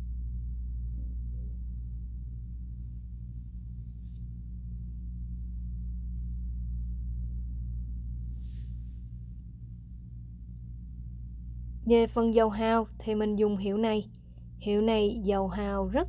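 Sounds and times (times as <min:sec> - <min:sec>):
gong-like low hum: 0:00.0 - 0:16.0.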